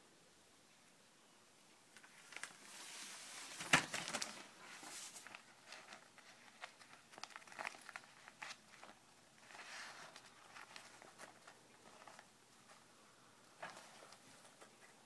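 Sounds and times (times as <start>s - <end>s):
newspaper rustling and crinkling: 2.0s - 15.0s.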